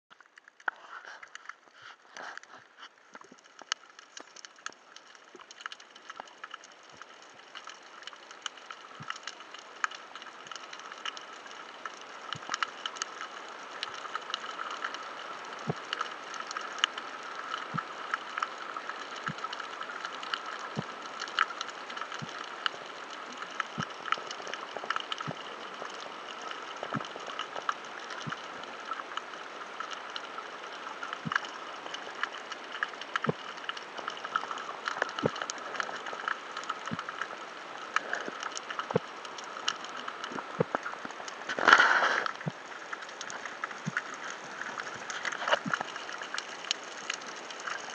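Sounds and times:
sharp clicks and crackles: 0.1s - 47.9s
underwater hiss: 41.5s - 46.6s.

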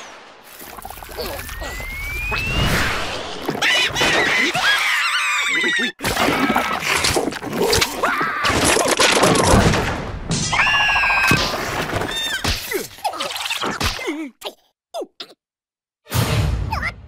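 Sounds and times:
high squeaky cartoon cries: 3.6s - 6.0s.

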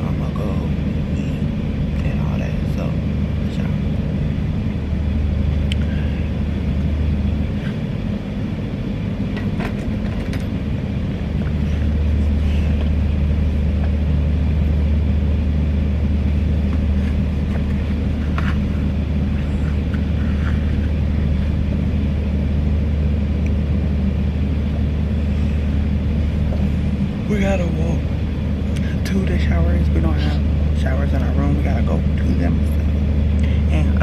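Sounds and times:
low machine hum: 0.0s - 34.0s.

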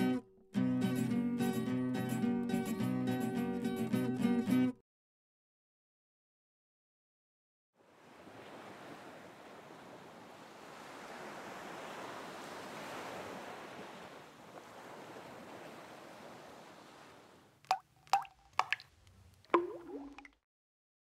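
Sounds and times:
sea waves washing on shore: 7.8s - 20.3s.

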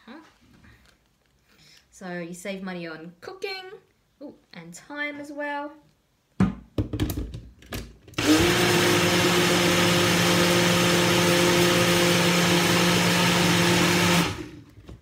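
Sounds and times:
blender motor running: 8.2s - 14.6s.

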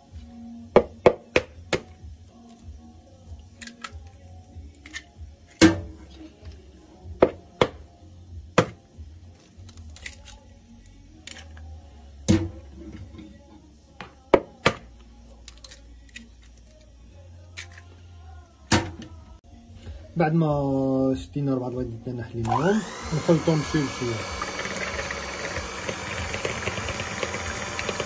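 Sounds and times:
eggs being cracked: 3.5s - 4.1s, 4.8s - 5.7s.

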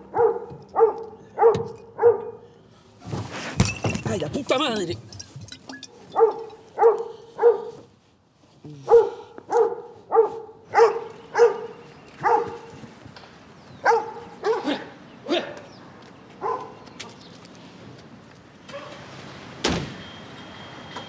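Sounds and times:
dog barking: 0.0s - 2.5s, 6.1s - 7.8s, 8.9s - 12.7s, 13.8s - 14.9s, 16.4s - 16.8s, 18.7s - 19.0s.

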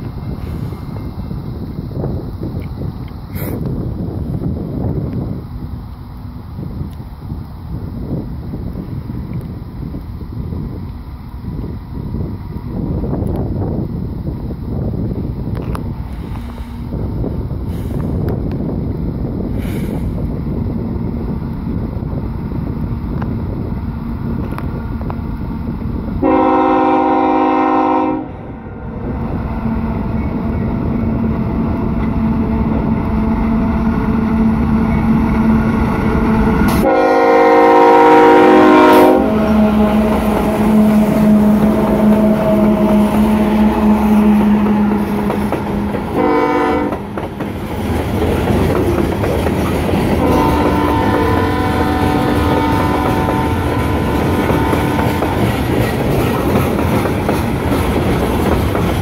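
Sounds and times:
train rumbling on rails: 0.0s - 59.0s
train air horn blasts: 26.2s - 31.2s, 36.4s - 47.1s, 50.2s - 55.6s.

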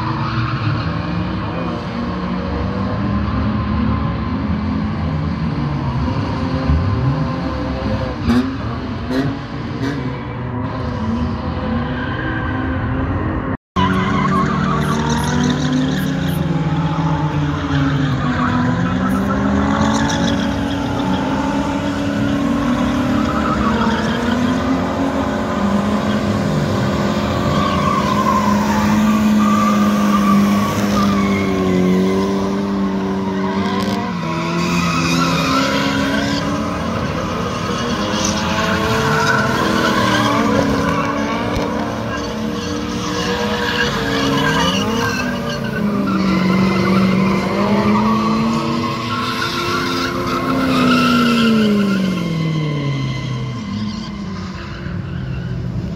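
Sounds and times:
car engines revving: 0.0s - 55.9s.

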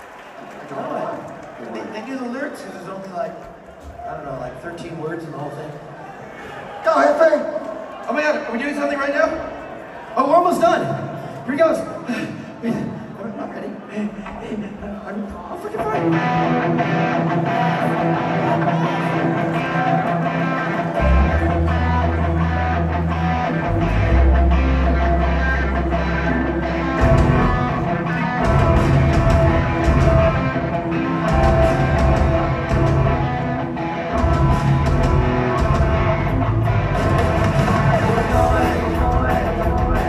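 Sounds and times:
drums: 14.0s - 40.0s
electric guitar: 15.8s - 40.0s
punk rock band playing live: 15.8s - 40.0s
bass notes: 20.5s - 40.0s.

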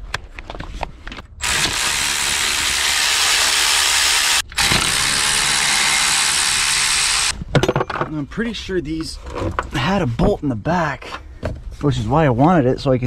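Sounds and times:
cordless power tool spinning: 1.4s - 7.4s.

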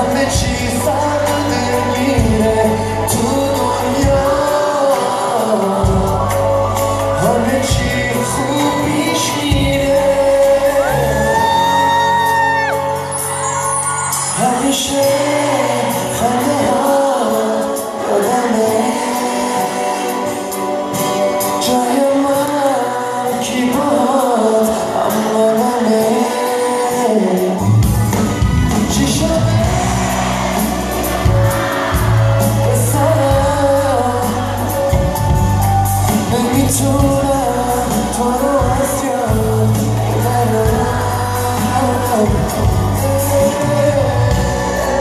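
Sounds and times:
live pop band with drums: 0.0s - 45.0s
man singing into a microphone: 0.0s - 45.0s.

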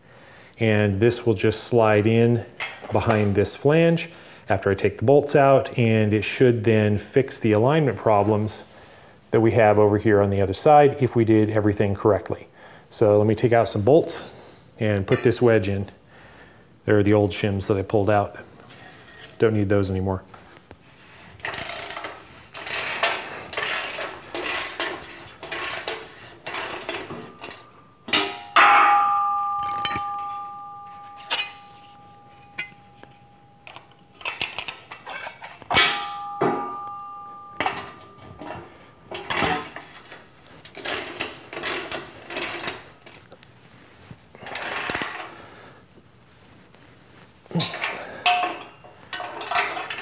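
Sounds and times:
ratchet wrench clicking: 21.4s - 28.3s
metal clinks and clanks: 21.4s - 43.2s, 47.6s - 50.0s
steel ringing: 23.5s - 40.2s.

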